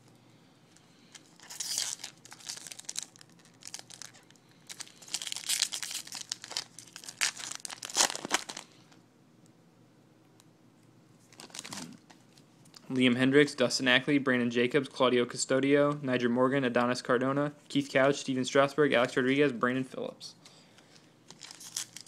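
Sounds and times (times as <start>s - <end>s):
foil wrapper crinkling and tearing: 1.0s - 8.8s, 11.3s - 12.0s, 21.0s - 22.0s.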